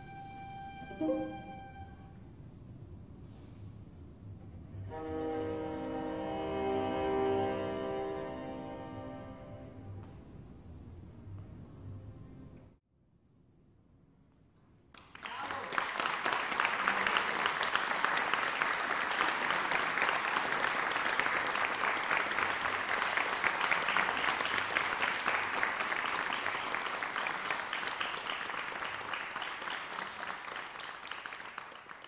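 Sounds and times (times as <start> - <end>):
audience applauding: 15.0 - 32.0.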